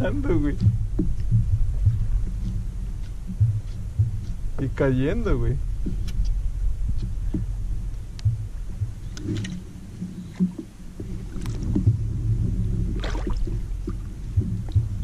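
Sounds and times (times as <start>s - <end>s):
water against kayak hull: 0.0s - 15.0s
wind: 0.0s - 15.0s
rod and reel clicks: 0.5s - 4.8s, 5.8s - 7.5s.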